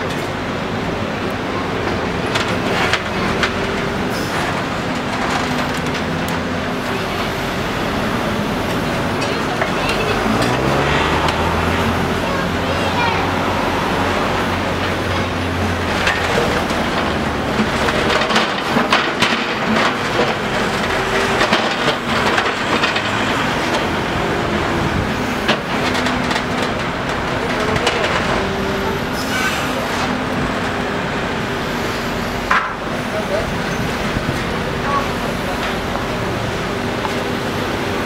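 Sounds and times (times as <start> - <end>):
diesel engine running: 0.0 - 38.0.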